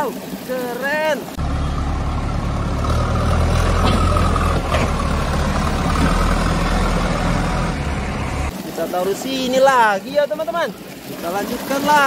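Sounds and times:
diesel engine running: 0:01.4 - 0:08.5.

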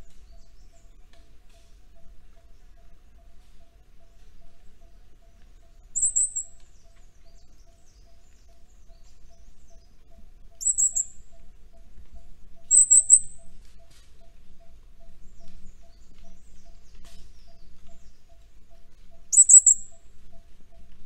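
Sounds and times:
parrot high-pitched calls: 0:19.3 - 0:19.9.

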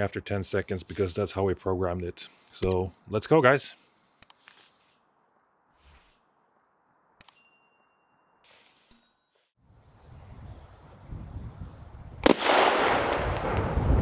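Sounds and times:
faint clicks: 0:04.2 - 0:04.6
firework bang: 0:12.2 - 0:14.0.

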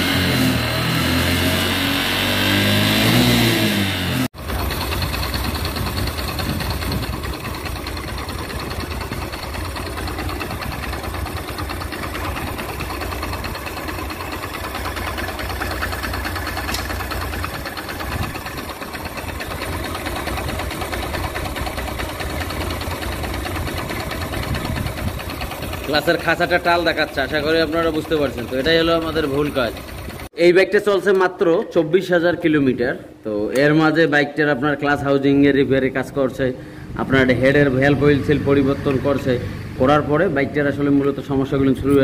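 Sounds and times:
clutch mechanical clatter: 0:04.4 - 0:30.3
motorcycle engine idling: 0:04.4 - 0:30.3.

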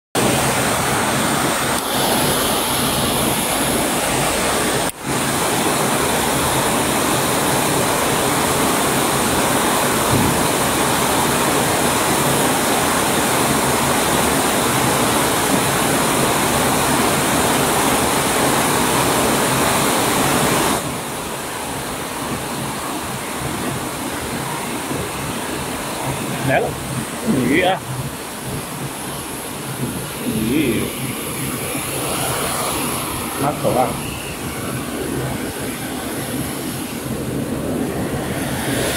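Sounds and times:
water rushing over spillway: 0:00.2 - 0:38.9.

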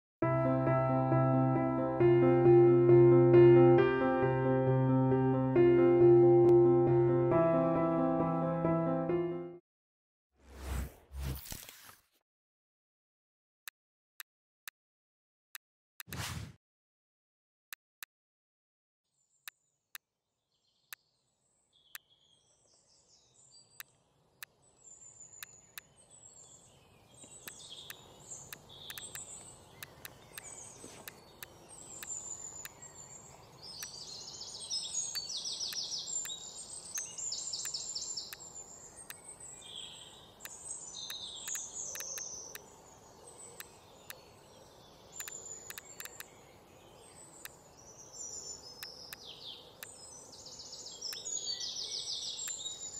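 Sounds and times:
birds chirping and trilling: 0:20.5 - 0:52.9
mouse clicks: 0:27.2 - 0:32.8, 0:40.4 - 0:42.7, 0:45.2 - 0:46.3, 0:48.8 - 0:50.0, 0:52.4 - 0:52.7.

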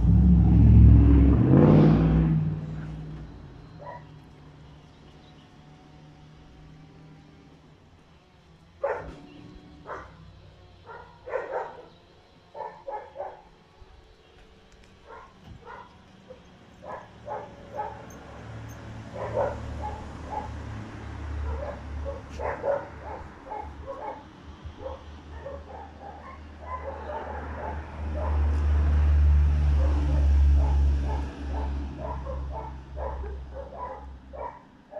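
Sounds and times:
low steady rumble: 0:00.0 - 0:04.2
dogs barking and yipping: 0:03.7 - 0:04.2, 0:08.8 - 0:13.7, 0:14.9 - 0:28.8, 0:29.6 - 0:34.9.

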